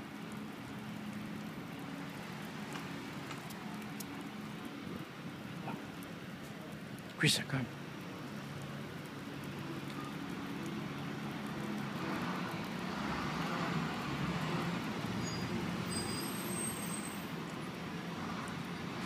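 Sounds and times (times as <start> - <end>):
road noise: 0.0 - 19.0
vehicle engine humming: 0.0 - 19.0.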